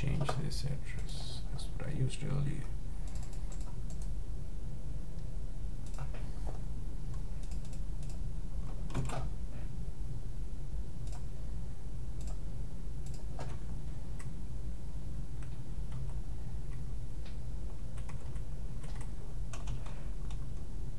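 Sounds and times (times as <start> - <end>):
steady low hum: 0.0 - 20.9
computer keyboard typing: 3.0 - 4.1, 5.8 - 6.2, 7.4 - 8.2, 8.9 - 9.3, 11.0 - 11.3, 12.2 - 12.4, 13.0 - 13.6, 15.9 - 16.8, 17.9 - 20.5.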